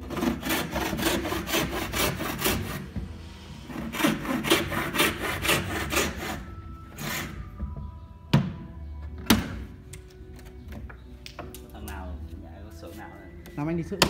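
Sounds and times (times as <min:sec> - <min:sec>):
frame saw cutting wood: 0:00.0 - 0:07.4.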